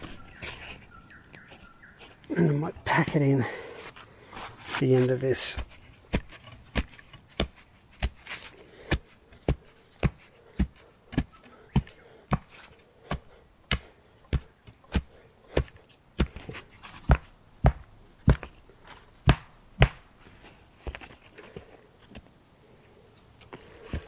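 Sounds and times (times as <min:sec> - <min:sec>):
wooden stick thudding into soil: 0:05.4 - 0:20.1.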